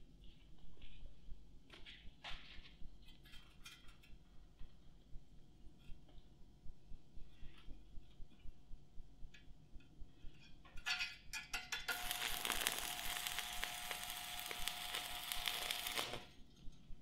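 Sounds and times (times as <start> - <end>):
welding arc crackling: 11.9 - 16.4.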